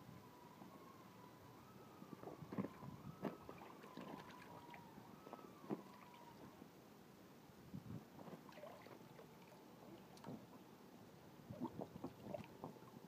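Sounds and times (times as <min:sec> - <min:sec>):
water splashing in paddling pool: 0:03.4 - 0:06.4, 0:08.4 - 0:10.6.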